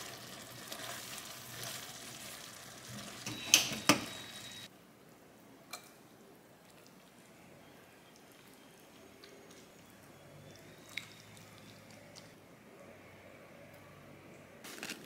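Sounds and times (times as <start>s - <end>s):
spaghetti sizzling in frying pan: 0.0s - 3.3s.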